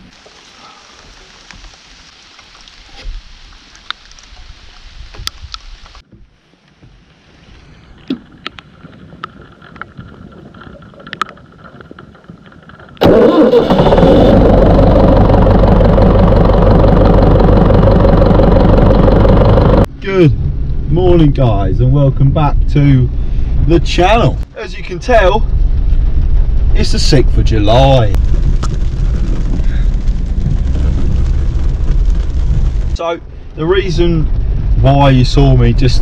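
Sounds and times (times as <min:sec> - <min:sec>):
pump engine running: 0:13.0 - 0:19.9.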